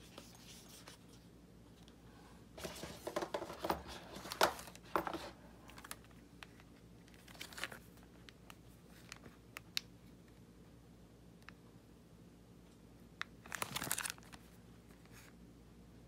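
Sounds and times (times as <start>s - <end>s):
packaging rustling: 2.6s - 8.1s, 13.4s - 15.3s.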